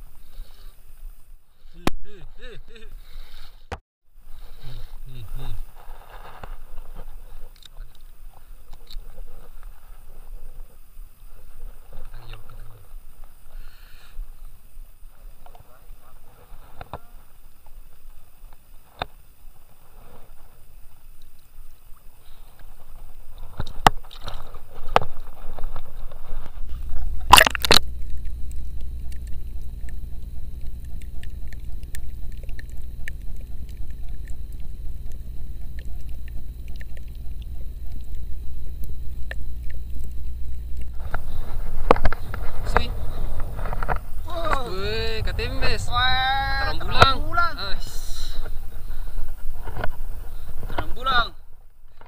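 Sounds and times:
underwater camera rumble: 5.0 - 52.0
water sloshing: 21.2 - 51.5.

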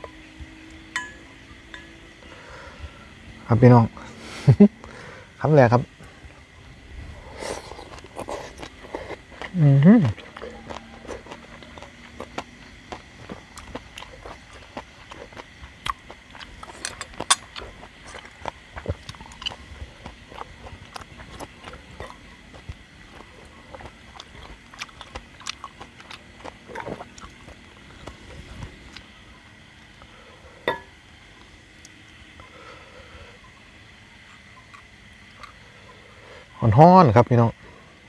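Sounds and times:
sharp clink: 1.0 - 2.0
man chewing and eating: 6.0 - 36.6.

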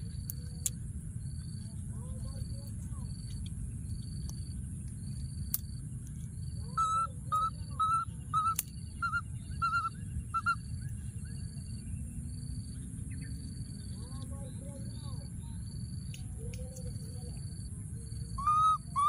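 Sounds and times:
insect chirping: 0.0 - 19.0
baby monkey high-pitched calls: 6.7 - 10.7, 18.2 - 19.0.

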